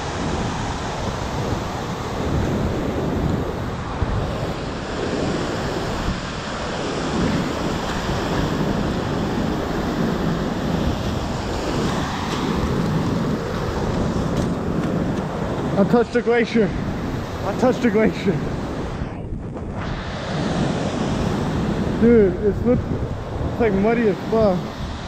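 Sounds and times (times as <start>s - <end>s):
rushing water torrent: 0.0s - 19.0s, 19.8s - 25.0s
wind buffeting the microphone: 0.0s - 25.0s.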